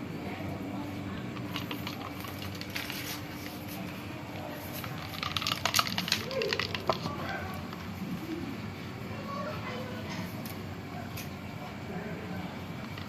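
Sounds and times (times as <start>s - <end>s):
steady low hum: 0.0s - 13.0s
plastic bag crinkling: 1.4s - 3.7s, 4.7s - 7.2s.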